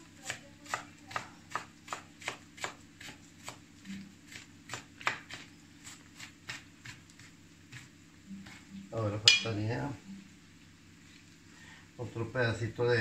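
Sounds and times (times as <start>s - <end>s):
knife chopping on cutting board: 0.2s - 3.6s, 4.3s - 8.6s.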